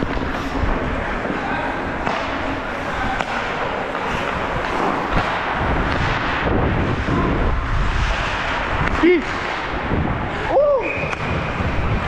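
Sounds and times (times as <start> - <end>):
skate blades scraping ice: 0.0 - 12.0
wind on microphone: 5.5 - 12.0.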